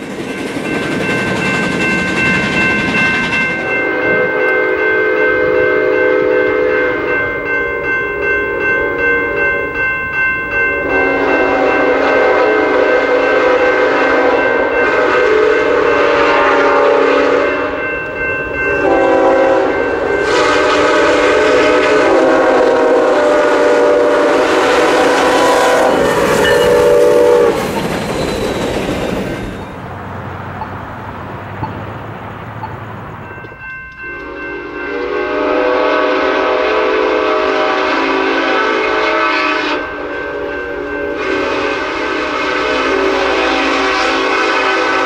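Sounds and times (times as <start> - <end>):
crossing bell dinging: 0.0 - 45.0
passing train rumble: 0.0 - 45.0
train air horn blasts: 3.6 - 7.1, 10.8 - 17.8, 18.8 - 27.7, 34.1 - 45.0.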